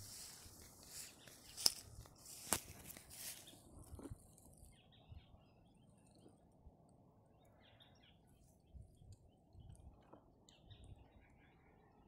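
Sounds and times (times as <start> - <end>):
light rustles: 0.0 - 4.4.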